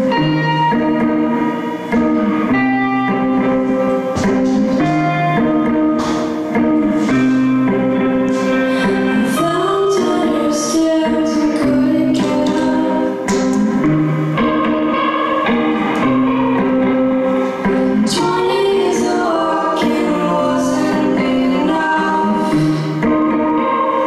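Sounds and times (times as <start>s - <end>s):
bass: 0.0s - 24.0s
electric guitars strumming chords: 0.0s - 24.0s
woman singing: 8.6s - 24.0s.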